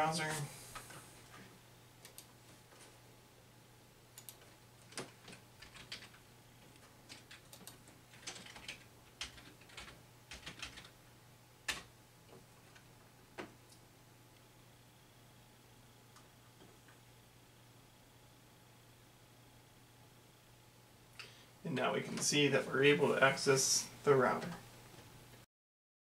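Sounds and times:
faint low hum: 0.0 - 25.4
keyboard keys tapping: 4.2 - 10.9.

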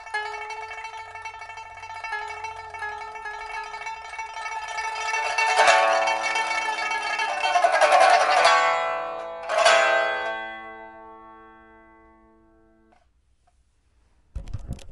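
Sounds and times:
pipa strummed rapidly: 0.0 - 10.9
loud ringing pipa chord: 0.0 - 13.0.

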